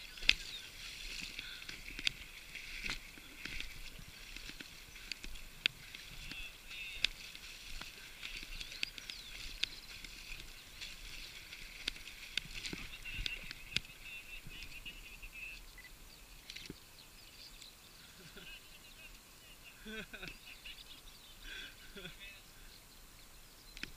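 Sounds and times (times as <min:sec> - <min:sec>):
steady high hiss: 0:00.0 - 0:23.9.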